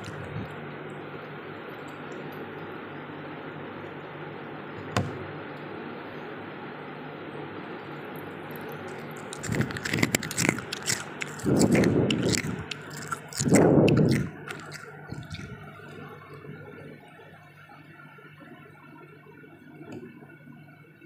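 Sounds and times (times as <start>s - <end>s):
loud crunching chews: 0.0s - 0.6s, 8.3s - 16.2s
frost crackling while chewed: 0.0s - 0.7s, 8.0s - 16.4s.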